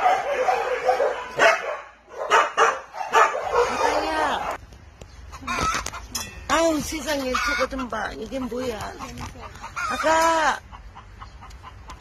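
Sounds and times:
dog yelps: 0:00.0 - 0:04.6
dogs barking: 0:00.0 - 0:04.6.

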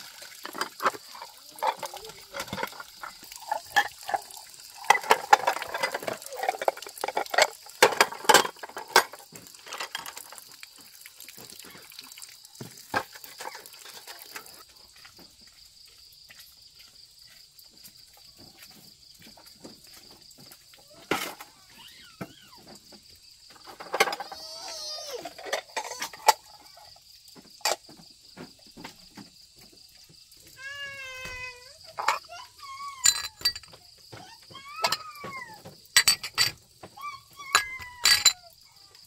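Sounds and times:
water splashing and pouring: 0:00.0 - 0:39.0
clatters and knocks: 0:04.8 - 0:10.4, 0:33.0 - 0:38.5.

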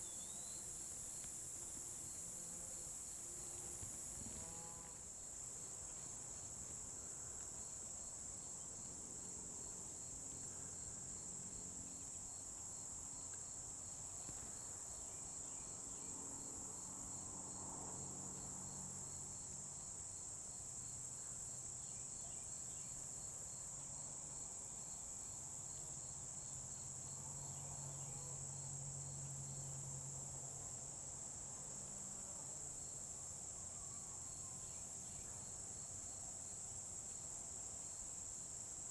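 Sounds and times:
crickets and insects chorus: 0:00.0 - 0:38.9.

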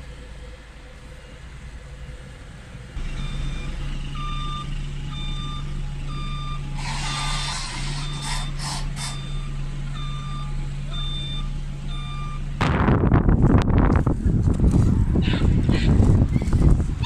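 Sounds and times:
engine hum: 0:00.0 - 0:17.0
low rumble: 0:00.0 - 0:17.0
reversing alarm beeps: 0:03.0 - 0:12.5.

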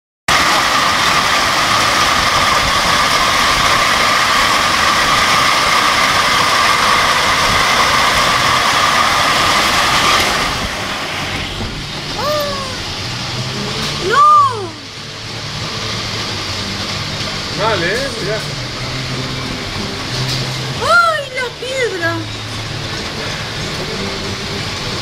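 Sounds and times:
heavy hail pelting down: 0:00.3 - 0:25.0
strong wind: 0:00.5 - 0:13.4.

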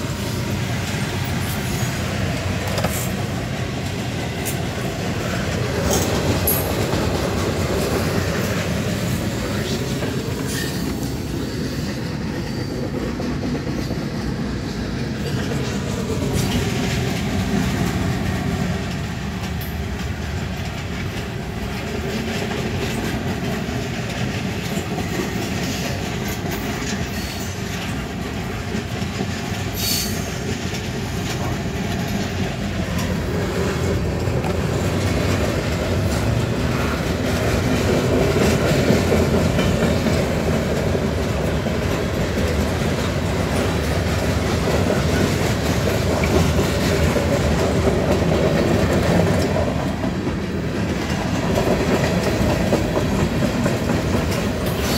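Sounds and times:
train wheels clattering on rails: 0:00.0 - 0:54.9.

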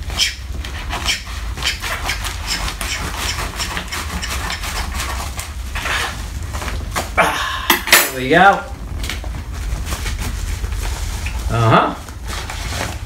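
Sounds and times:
plastic rustling: 0:04.0 - 0:07.2, 0:08.2 - 0:13.0.

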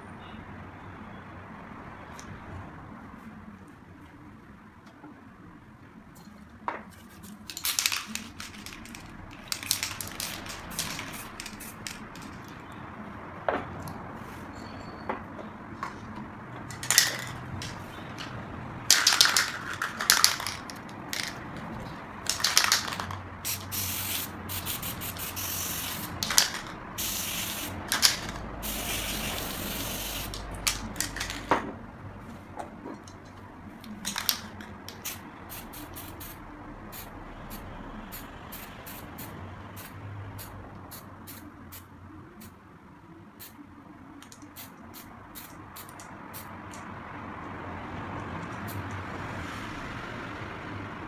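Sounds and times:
spray paint can hissing: 0:07.0 - 0:12.6, 0:16.7 - 0:18.0, 0:18.9 - 0:21.4, 0:22.2 - 0:31.5, 0:33.9 - 0:42.5, 0:44.2 - 0:46.8.

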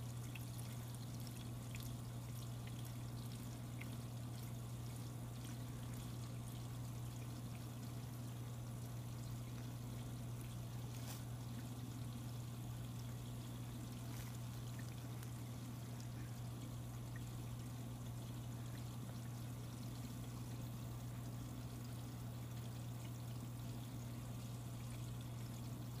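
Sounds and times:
filter humming: 0:00.0 - 0:26.0
water trickling: 0:00.0 - 0:26.0
faint ticks: 0:09.3 - 0:15.4.

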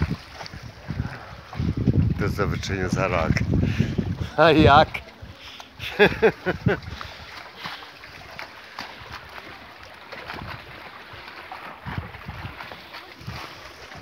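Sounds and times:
wind noise on microphone: 0:00.0 - 0:05.4, 0:06.1 - 0:07.4, 0:10.2 - 0:10.9, 0:11.7 - 0:14.0
small splashes: 0:00.0 - 0:14.0
water lapping in shallows: 0:00.0 - 0:14.0.

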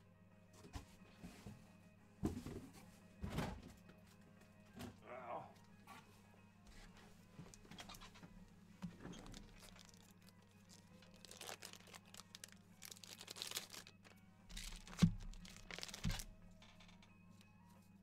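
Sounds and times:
cards being handled: 0:09.1 - 0:16.3
foil wrappers crinkling and tearing: 0:09.1 - 0:16.3.

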